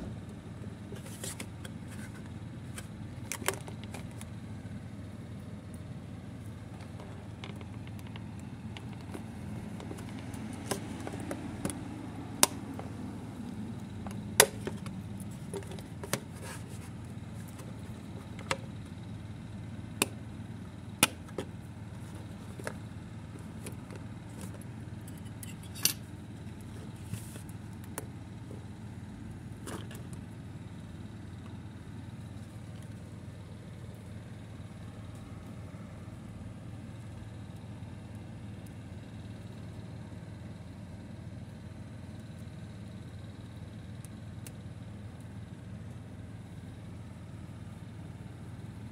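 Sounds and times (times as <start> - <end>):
steady low hum: 0.0 - 48.9
box and plastic handled: 0.9 - 4.3, 14.1 - 18.6.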